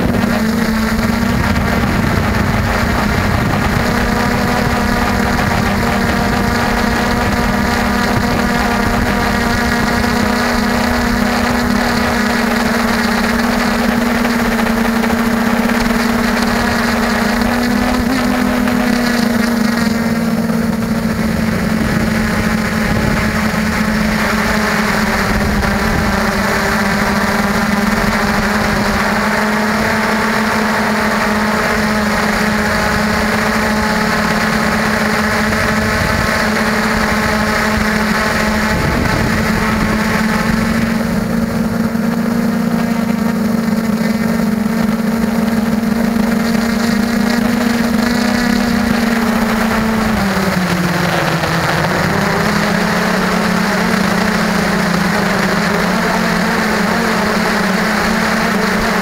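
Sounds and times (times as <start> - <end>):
drone motors humming: 0.0 - 59.0.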